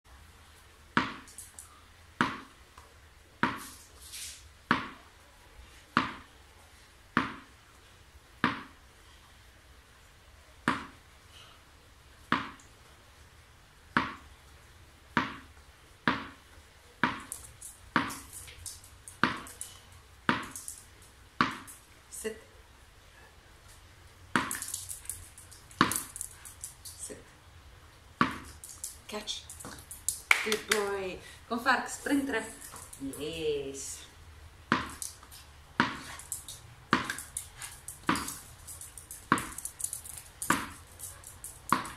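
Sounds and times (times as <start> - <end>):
tennis ball bouncing on hard floor: 0.9 - 1.5, 2.2 - 2.6, 3.4 - 3.7, 4.7 - 5.0, 5.9 - 6.3, 7.1 - 7.5, 8.4 - 8.8, 10.6 - 11.0, 12.2 - 12.7, 13.9 - 14.3, 15.1 - 16.4, 17.0 - 19.6, 20.2 - 20.8, 21.4 - 21.8, 24.3 - 26.3, 28.2 - 28.9, 34.7 - 41.9.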